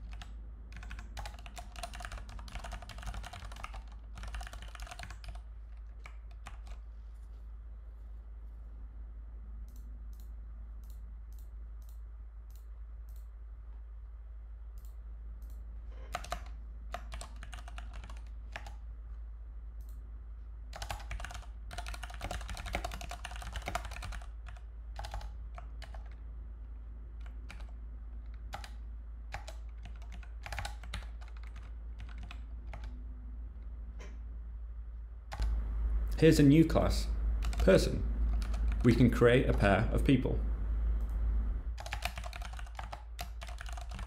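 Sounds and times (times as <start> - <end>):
computer keyboard typing: 0.0 - 6.8, 14.8 - 18.8, 20.7 - 26.2, 27.2 - 33.0, 35.3 - 35.6, 37.4 - 39.0, 41.8 - 44.0
low hum: 31.2 - 41.9.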